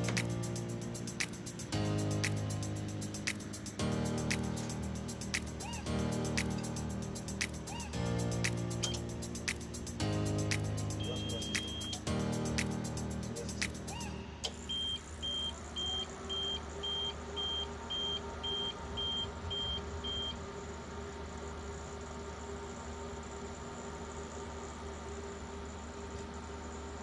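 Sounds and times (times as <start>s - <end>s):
steady low hum: 0.0s - 26.1s
short high alarm beeps: 11.0s - 12.0s, 14.6s - 20.4s.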